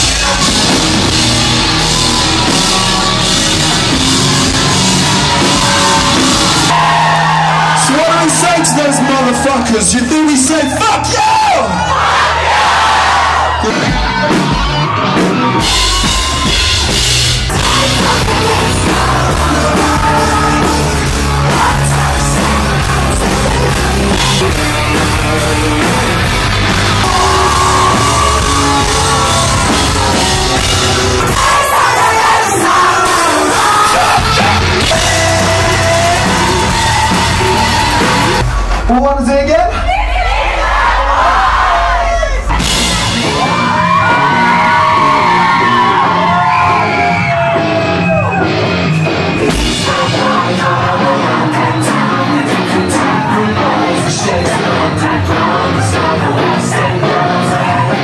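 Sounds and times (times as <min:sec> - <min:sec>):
live rock band playing: 0:00.0 - 0:40.0, 0:42.4 - 0:58.0
drum kit: 0:00.0 - 0:58.0
person singing: 0:17.5 - 0:38.4, 0:49.4 - 0:58.0.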